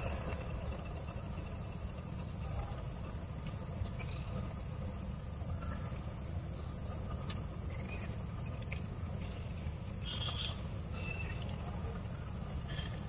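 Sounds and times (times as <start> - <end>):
low rumble: 0.0 - 10.0
insect hiss: 0.0 - 13.0.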